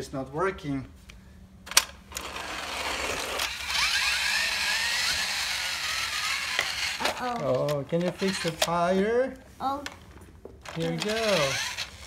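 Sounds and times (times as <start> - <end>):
toy gear click: 1.7 - 8.8, 10.6 - 12.0
toy gear mechanism whirring: 1.7 - 8.9, 10.6 - 12.0.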